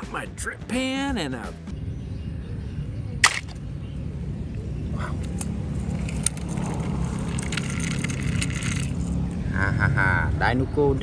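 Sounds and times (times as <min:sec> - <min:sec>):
low outdoor rumble: 0:01.7 - 0:11.0
toy cars clicking: 0:05.2 - 0:09.2.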